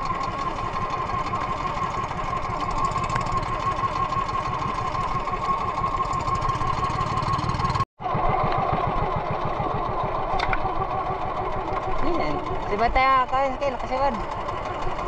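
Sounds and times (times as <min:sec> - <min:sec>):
boat engine running: 0:00.0 - 0:15.0.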